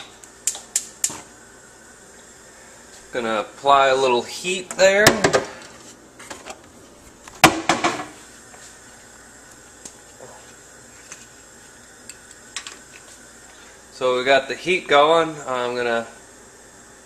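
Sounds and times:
gas burner hissing: 0:07.9 - 0:17.0.

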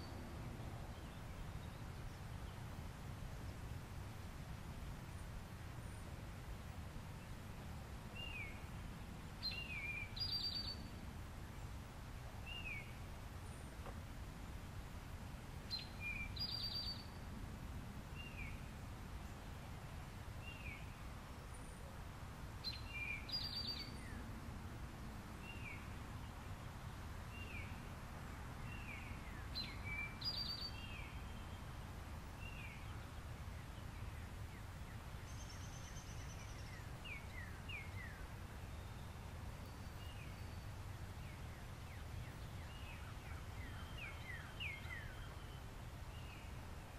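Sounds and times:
birds singing: 0:09.4 - 0:11.7, 0:15.7 - 0:17.2, 0:22.6 - 0:24.3, 0:28.6 - 0:46.6.

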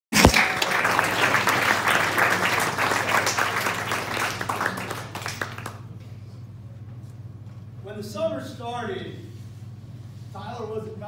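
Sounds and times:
crowd applauding: 0:00.1 - 0:05.9.

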